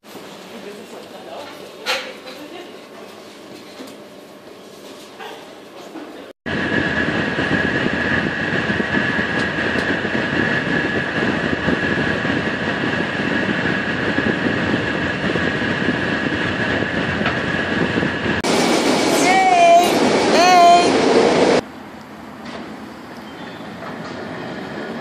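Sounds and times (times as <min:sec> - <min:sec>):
steady high whine: 0:06.5 - 0:23.3
train wheels rumbling on track: 0:06.5 - 0:25.0.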